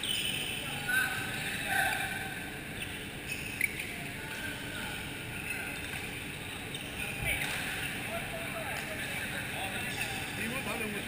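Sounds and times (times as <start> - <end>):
indoor hall hum: 0.0 - 11.0.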